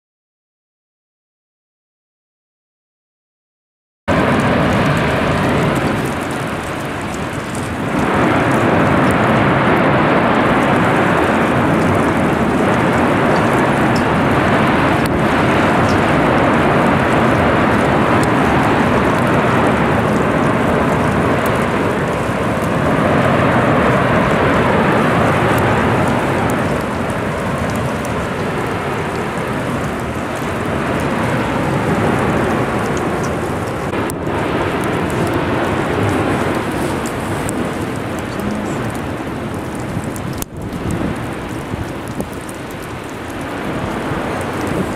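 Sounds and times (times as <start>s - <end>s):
lava fountains rushing: 4.1s - 44.9s.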